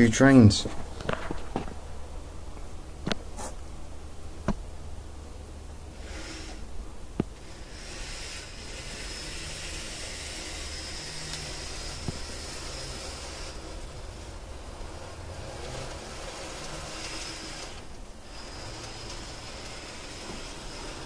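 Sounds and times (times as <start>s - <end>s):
model train motor whine: 5.9s - 6.8s, 7.4s - 21.0s.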